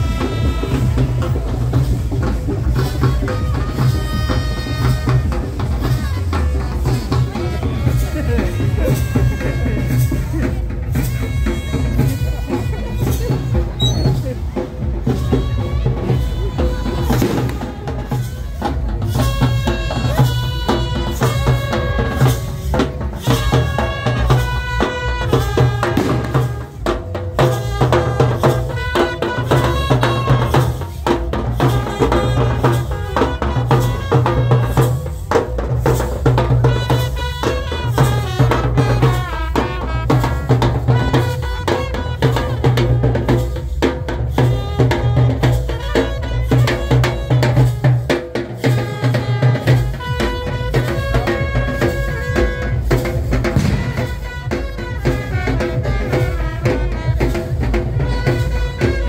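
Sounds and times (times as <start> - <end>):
bass drum and side drums: 0.0 - 59.0
trumpets playing melody: 0.0 - 59.0.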